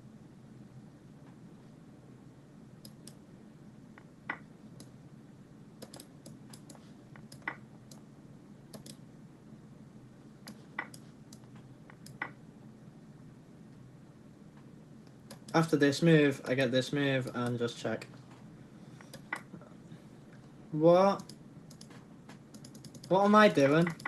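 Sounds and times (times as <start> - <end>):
faint low hum: 0.0 - 24.0
computer mouse clicks: 2.8 - 3.2, 5.8 - 8.0, 8.7 - 9.0, 10.4 - 12.4, 15.0 - 15.6, 19.0 - 19.5, 21.2 - 23.2, 23.8 - 24.0.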